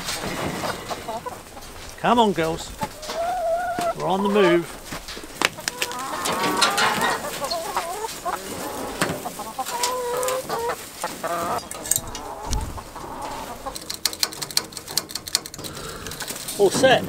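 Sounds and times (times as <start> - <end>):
hens clucking: 0.0 - 17.0
coop wheels clicking and knocking: 13.6 - 17.0.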